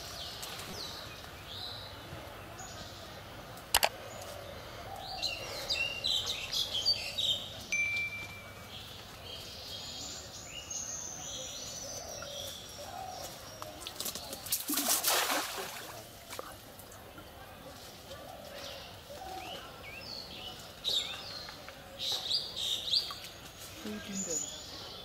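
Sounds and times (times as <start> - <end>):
birds chirping: 0.0 - 14.6, 15.7 - 25.0
net splashing into water: 14.5 - 16.1.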